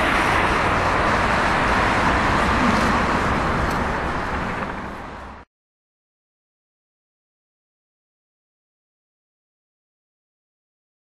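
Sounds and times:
road and engine noise inside vehicle: 0.0 - 5.5.

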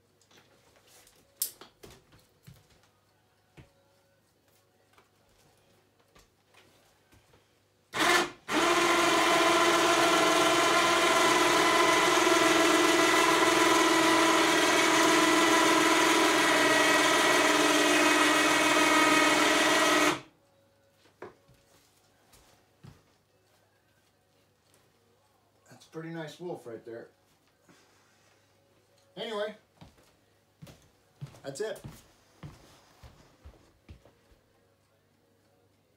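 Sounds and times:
electric winch motor whine: 8.0 - 20.3.

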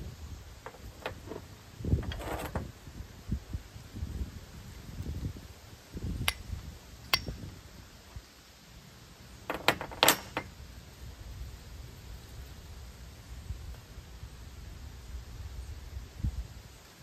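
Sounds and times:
steel striking flint: 6.3 - 7.5, 9.5 - 10.5.

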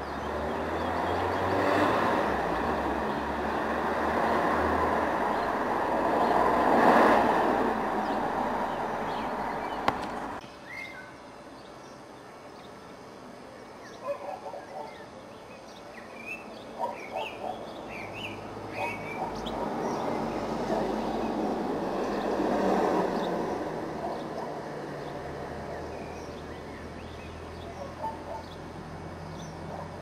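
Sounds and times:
steady rushing noise: 0.8 - 10.4, 18.4 - 26.4
high bird chirps: 13.8 - 21.4.

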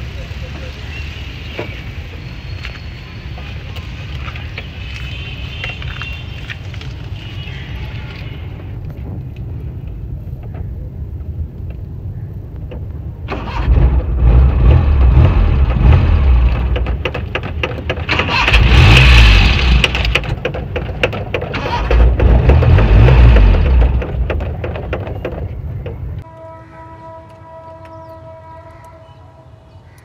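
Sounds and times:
car engine cranking: 13.3 - 26.2.

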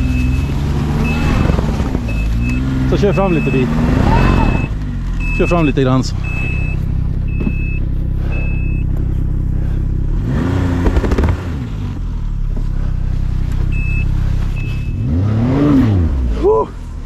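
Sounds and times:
short high beeps: 0.0 - 1.5, 2.1 - 8.9, 13.8 - 15.1
snowmobile engine revving: 0.0 - 17.0.

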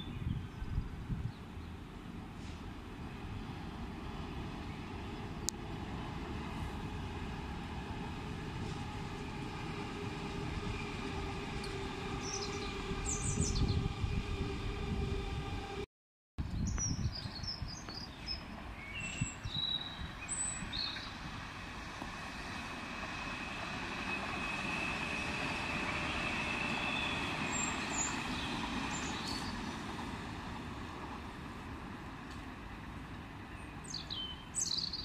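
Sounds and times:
wind on microphone: 0.0 - 1.6, 10.2 - 15.8, 16.4 - 18.0
trains rumbling past: 0.0 - 15.9, 18.4 - 35.0
high train whine: 0.1 - 15.9, 20.0 - 33.8
birds chirping: 9.1 - 15.8, 25.2 - 29.9.

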